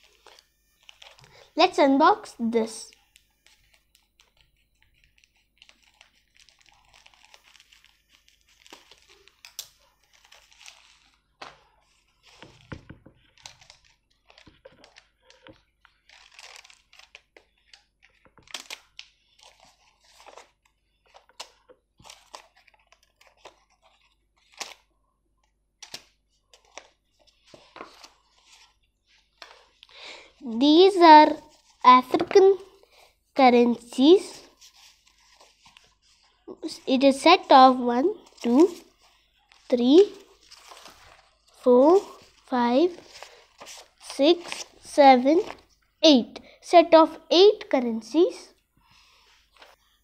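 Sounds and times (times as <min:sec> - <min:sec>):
paper crinkling and tearing: 0:00.0 - 0:01.5, 0:02.9 - 0:24.9, 0:34.4 - 0:36.8, 0:38.2 - 0:45.7.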